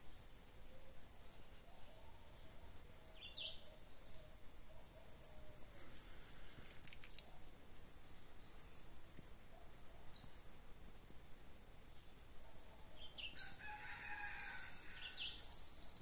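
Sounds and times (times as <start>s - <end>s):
birds chirping: 0.2s - 9.4s.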